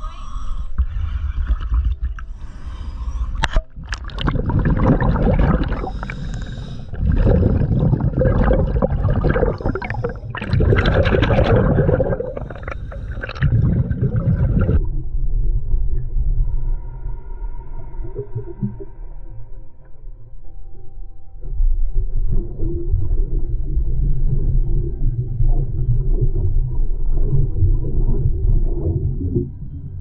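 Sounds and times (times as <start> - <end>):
underwater exhaled breath bubbling: 0.0 - 14.9.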